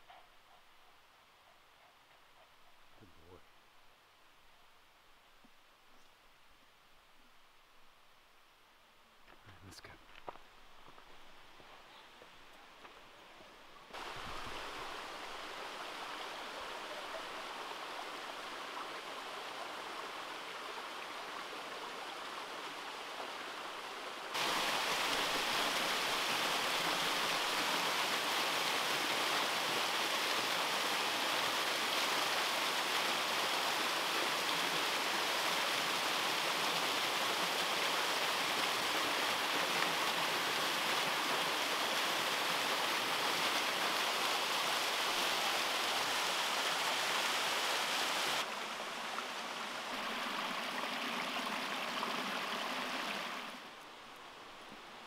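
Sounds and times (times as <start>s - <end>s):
waterfall rushing water: 13.9s - 53.7s.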